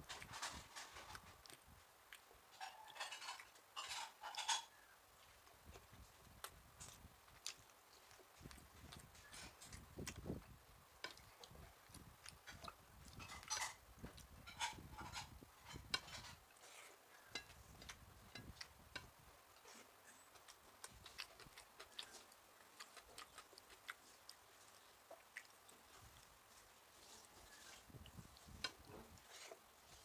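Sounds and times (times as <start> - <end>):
chewing and mouth smacks: 0.1 - 30.0.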